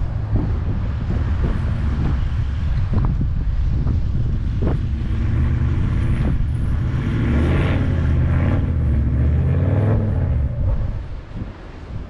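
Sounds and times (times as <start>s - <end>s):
engine droning under load: 0.0s - 12.0s.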